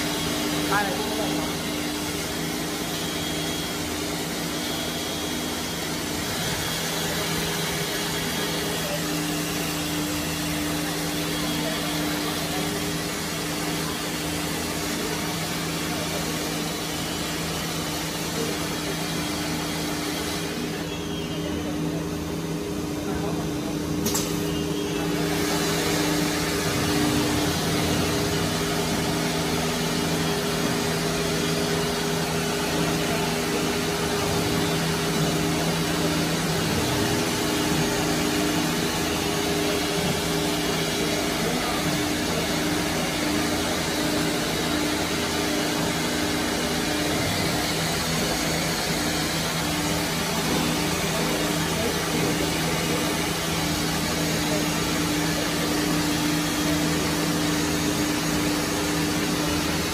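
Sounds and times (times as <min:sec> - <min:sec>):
machine hum: 0:00.0 - 0:59.9
sharp click: 0:24.0 - 0:24.4.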